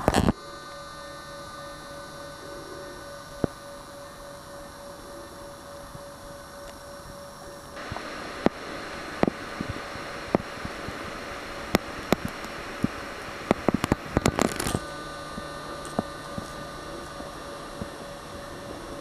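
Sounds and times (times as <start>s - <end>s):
faint hiss: 0.0s - 19.0s
thin hum: 0.0s - 19.0s
sharp clicks: 7.8s - 18.1s.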